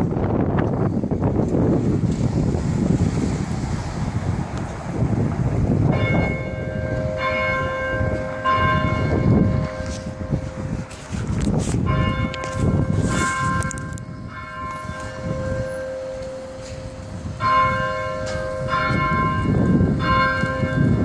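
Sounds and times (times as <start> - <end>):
church bells ringing: 5.8 - 21.0.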